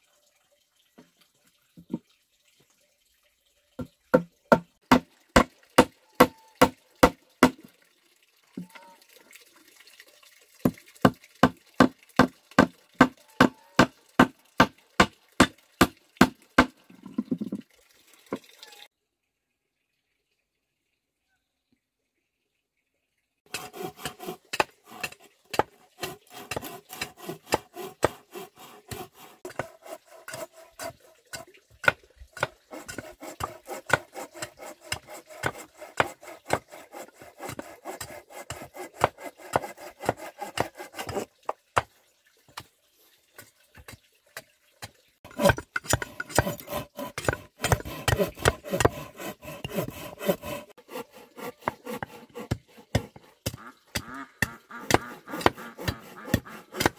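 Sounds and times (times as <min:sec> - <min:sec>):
machete chopping wood: 0:04.2 - 0:05.9, 0:37.4 - 0:41.2, 0:45.3 - 0:50.7, 0:51.4 - 0:56.9.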